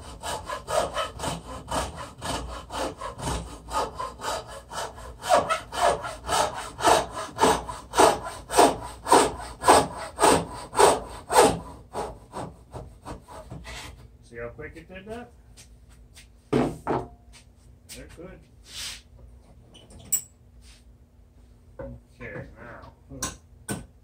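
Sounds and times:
hacksaw cutting wood: 0:00.0 - 0:13.9.

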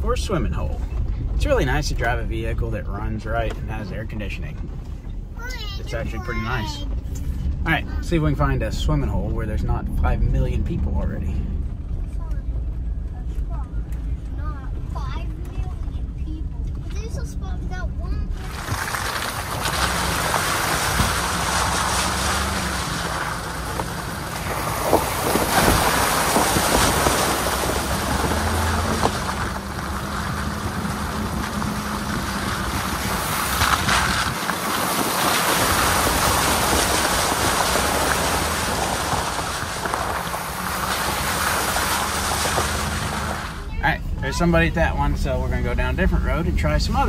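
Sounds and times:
truck engine hum: 0:00.0 - 0:47.0
tyres splashing through puddles: 0:00.0 - 0:47.0
tyre rumble on gravel: 0:18.3 - 0:43.7
stones knocking: 0:18.4 - 0:43.6
wind noise on microphone: 0:24.2 - 0:40.3.

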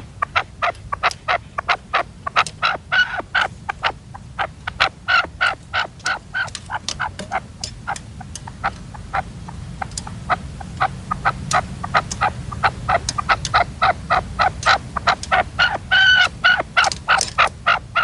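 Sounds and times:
partridges clucking: 0:00.2 - 0:18.0.

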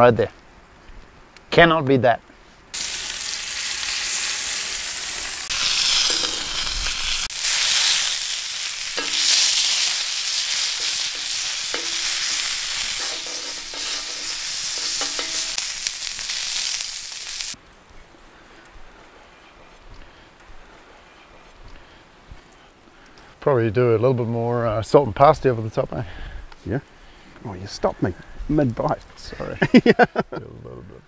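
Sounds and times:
steaks sizzling on griddle: 0:02.8 - 0:17.6.

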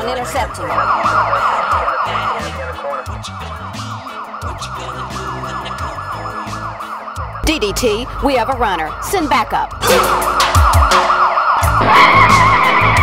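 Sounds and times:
music with deep bass: 0:00.0 - 0:13.0
police siren yelping: 0:00.0 - 0:13.0.

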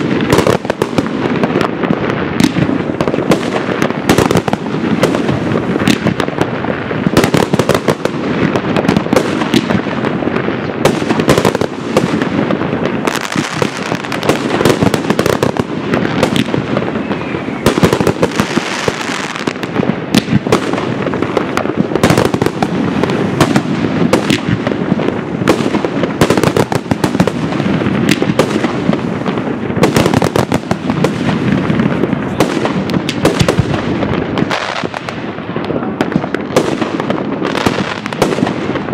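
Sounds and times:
firework crackle and bangs: 0:00.0 - 0:38.9.

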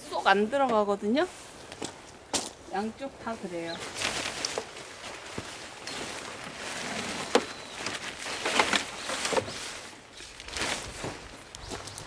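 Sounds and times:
fabric rustling and scraping: 0:03.8 - 0:11.3.

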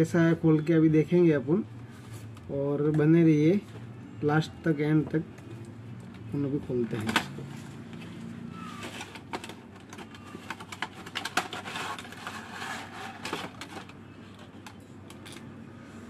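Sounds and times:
plastic tray sliding out of box: 0:10.6 - 0:13.9.

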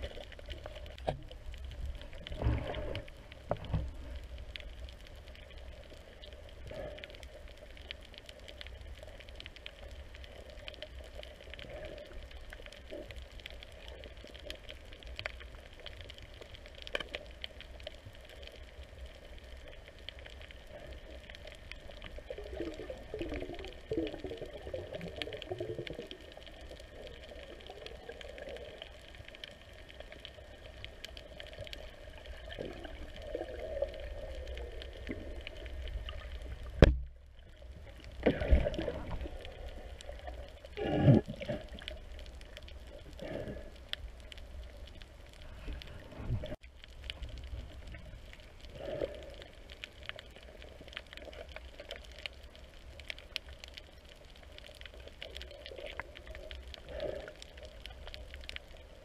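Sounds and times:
low underwater rumble: 0:00.0 - 0:59.0
bubbling gurgles: 0:20.6 - 0:43.8.

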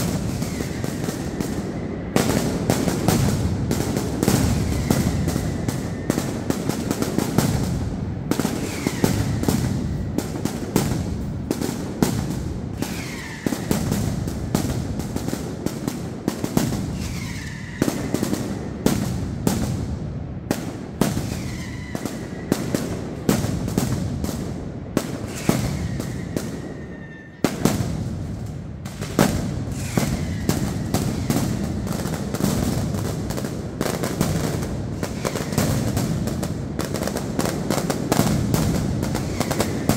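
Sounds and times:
firecrackers banging: 0:00.0 - 0:39.9
falling whistles: 0:00.3 - 0:02.2, 0:08.6 - 0:09.4, 0:12.8 - 0:13.8, 0:17.0 - 0:18.2, 0:21.2 - 0:22.6, 0:25.3 - 0:27.4, 0:29.7 - 0:31.4.

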